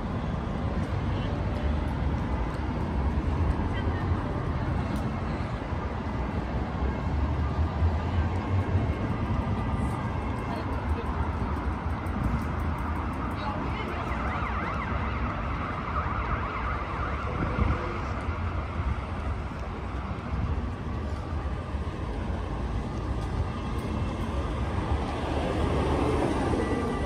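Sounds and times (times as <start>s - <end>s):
city street traffic: 0.0s - 27.0s
vehicle passing: 0.0s - 27.0s
emergency vehicle siren wailing: 6.7s - 27.0s.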